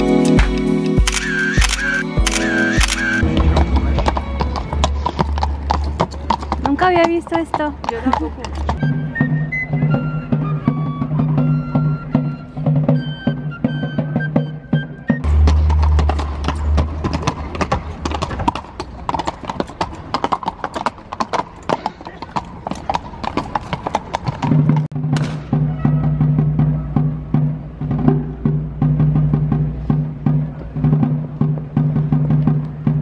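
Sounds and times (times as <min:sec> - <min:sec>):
fife and drum march music: 0:00.0 - 0:18.5, 0:24.4 - 0:33.0
horse hooves on stone: 0:02.2 - 0:08.8, 0:15.2 - 0:25.4.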